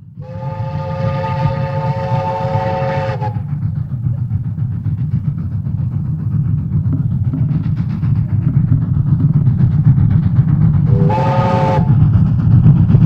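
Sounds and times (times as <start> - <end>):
locomotive engine rumble: 0.0 - 13.0
locomotive air horn: 0.2 - 3.4, 10.9 - 12.0.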